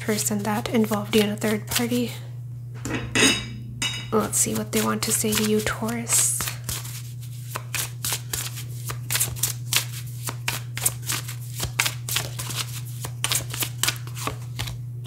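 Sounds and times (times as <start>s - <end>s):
low hum: 2.2s - 6.5s
cards being shuffled: 4.4s - 14.8s.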